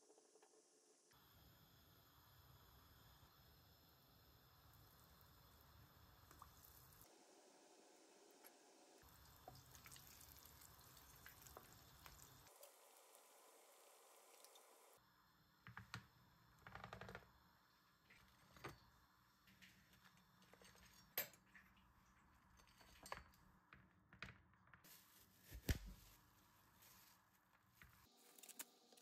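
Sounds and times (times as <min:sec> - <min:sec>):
oil frying hiss: 0:01.2 - 0:15.6
metal utensils clinking: 0:20.4 - 0:21.7.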